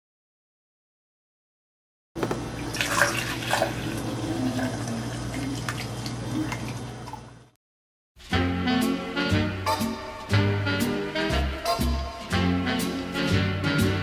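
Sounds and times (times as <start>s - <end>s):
juice pouring into glass: 2.6s - 7.4s.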